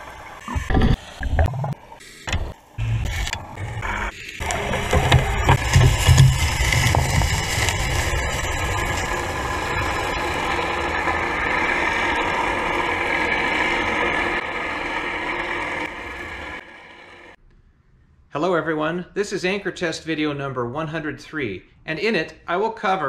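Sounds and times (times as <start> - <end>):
boat engine drone underwater: 0.0 - 17.4.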